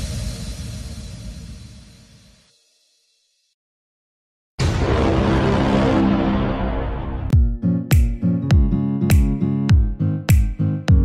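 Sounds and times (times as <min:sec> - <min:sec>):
background music: 0:05.5 - 0:11.0.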